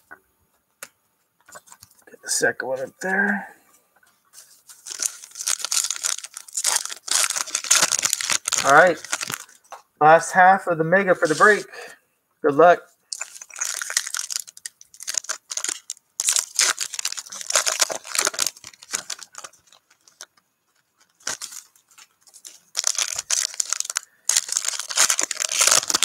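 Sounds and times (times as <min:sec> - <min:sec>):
wrapper crinkling and tearing: 0:04.4 - 0:09.6, 0:13.1 - 0:26.0.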